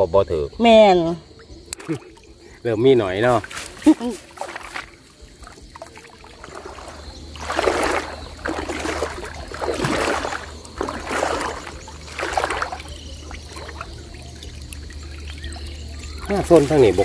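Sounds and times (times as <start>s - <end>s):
water sloshing around wading legs: 1.3s - 17.0s.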